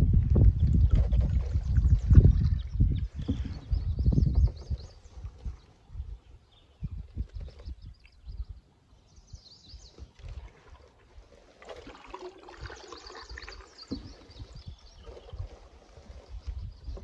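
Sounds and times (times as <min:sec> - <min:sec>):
water trickling and splashing: 0:00.0 - 0:03.7, 0:09.8 - 0:17.0
songbirds chirping: 0:00.2 - 0:17.0.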